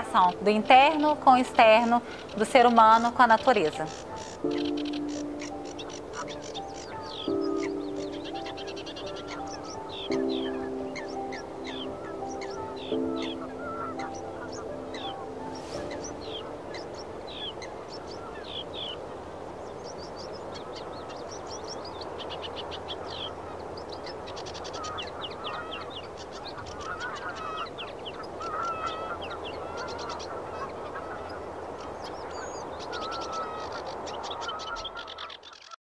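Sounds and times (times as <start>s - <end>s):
wavering honking calls: 0.0s - 18.6s
birds chirping and trilling: 0.0s - 35.8s.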